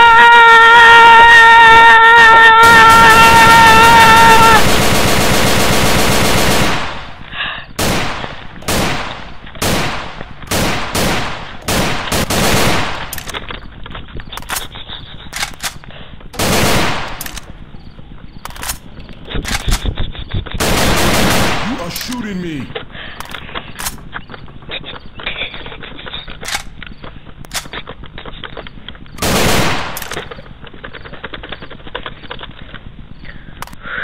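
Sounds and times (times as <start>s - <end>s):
automatic gunfire: 2.7s - 7.2s, 7.8s - 13.4s, 16.4s - 17.5s, 20.6s - 22.2s, 29.2s - 30.4s
single gunshots with echo: 20.8s - 22.5s.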